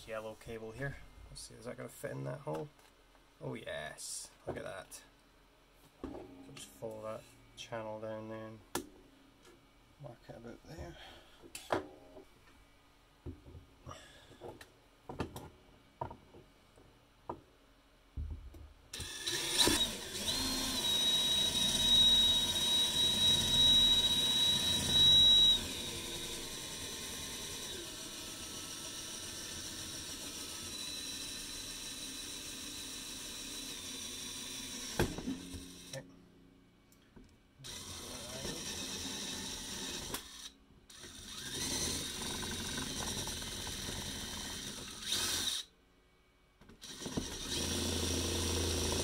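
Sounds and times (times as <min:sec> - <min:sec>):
power drill boring into plastic: 0:19.0 - 0:36.0, 0:37.6 - 0:45.7, 0:46.8 - 0:49.0.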